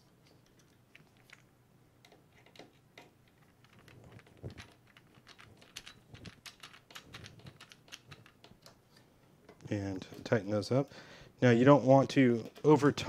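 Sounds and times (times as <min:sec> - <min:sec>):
small metal tools clicking: 0:03.5 - 0:08.7.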